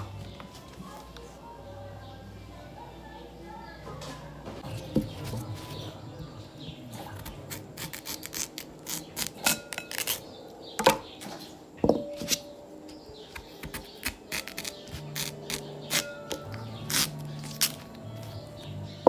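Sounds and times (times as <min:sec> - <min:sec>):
knife crunching through sweet potato: 0:06.9 - 0:10.3, 0:13.3 - 0:18.4.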